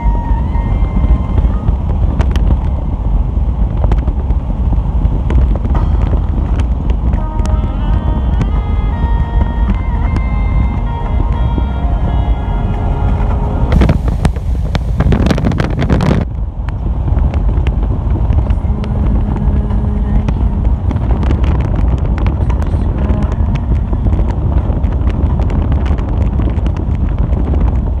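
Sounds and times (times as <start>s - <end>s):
car driving rumble: 0.0s - 28.0s
wind buffeting microphone: 0.0s - 28.0s.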